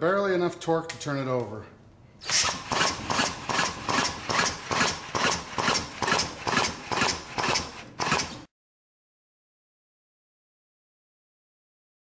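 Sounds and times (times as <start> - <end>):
drill straining: 2.2 - 8.5
engine turned over chuffing: 2.3 - 8.4.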